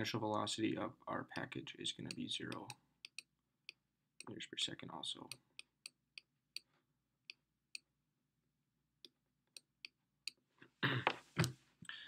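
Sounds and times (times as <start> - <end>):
person speaking: 0.0 - 2.8, 4.2 - 5.5.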